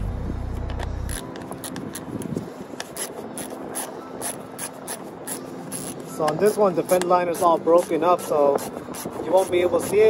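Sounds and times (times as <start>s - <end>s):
low steady hum: 0.0s - 6.3s.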